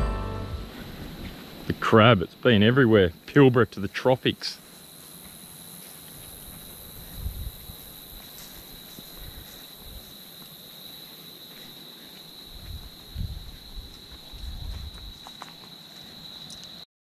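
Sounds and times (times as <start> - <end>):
dull low thumps: 0.0 - 1.3
insects droning: 0.6 - 16.9.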